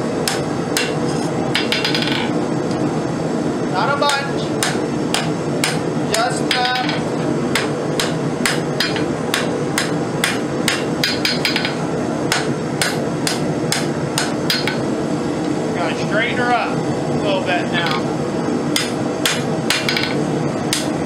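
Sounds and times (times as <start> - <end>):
hammer striking hot metal on anvil: 0.2 - 2.2, 4.1 - 14.9, 18.7 - 21.0.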